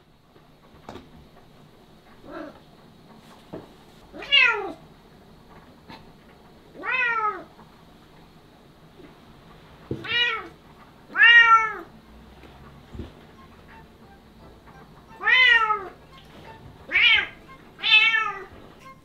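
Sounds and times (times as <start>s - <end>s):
cat meowing loudly: 4.1s - 4.8s, 6.8s - 7.5s, 10.0s - 10.5s, 11.1s - 11.9s, 15.2s - 16.0s, 16.9s - 18.5s.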